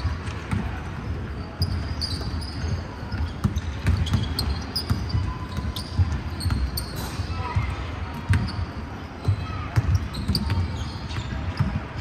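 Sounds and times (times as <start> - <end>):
sneaker squeaks: 0.0 - 12.0
basketballs bouncing on hardwood: 1.6 - 6.8, 7.6 - 8.6, 9.2 - 12.0.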